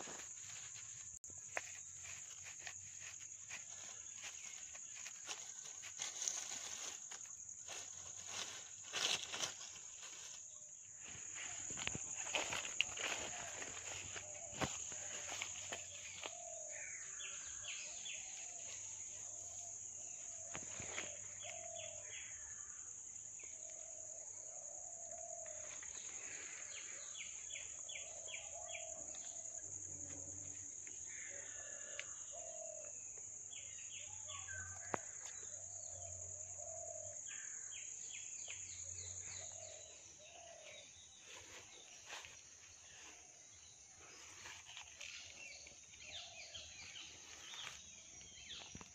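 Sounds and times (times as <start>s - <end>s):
birds calling: 11.0s - 18.8s.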